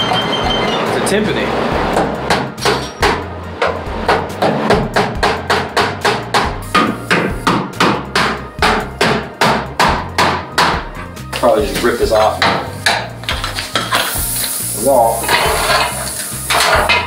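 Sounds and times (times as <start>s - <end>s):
hammer on sheet metal: 2.0s - 10.9s, 12.4s - 13.1s.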